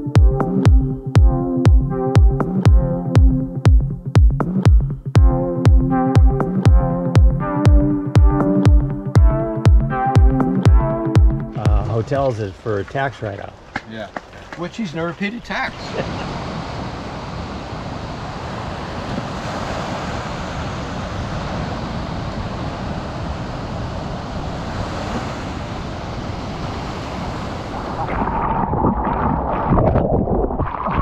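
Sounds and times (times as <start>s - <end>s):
ocean surf washing: 6.2s - 30.0s
water sloshing and splashing: 11.5s - 16.6s, 26.6s - 31.0s
wind noise on microphone: 15.7s - 31.0s.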